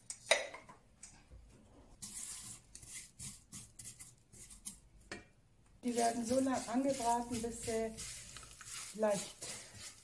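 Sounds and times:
noodles sizzling in oil: 5.8s - 10.0s
spatula scraping pan: 5.8s - 10.0s.

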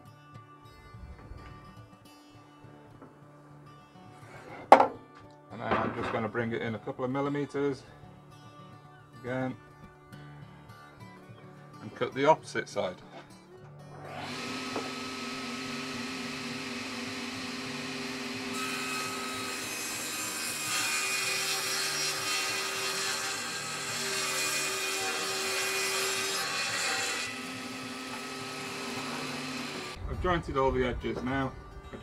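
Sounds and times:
table saw motor hum: 14.0s - 21.2s, 22.2s - 30.0s
saw ripping wood board: 16.0s - 30.0s.

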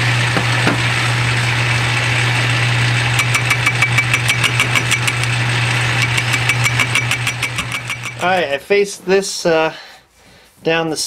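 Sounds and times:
lathe motor hum: 0.0s - 8.4s
lathe tool cutting metal: 0.4s - 8.4s
sharp repeating tick: 3.2s - 5.4s, 6.0s - 8.3s.

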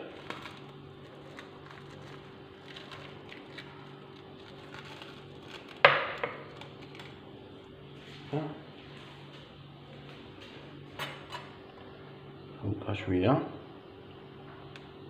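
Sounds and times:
plastic packet rustling: 0.0s - 8.2s
steady low hum: 0.0s - 15.0s.

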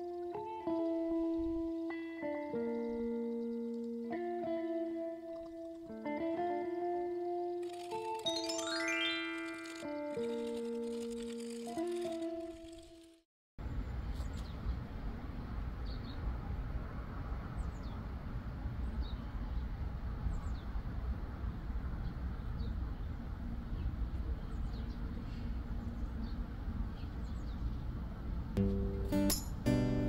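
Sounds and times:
small birds chirping: 0.0s - 7.0s.

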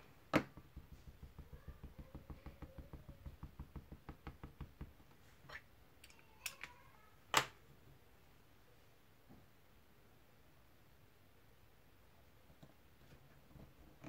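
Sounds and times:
light tapping on paper: 0.4s - 5.0s.

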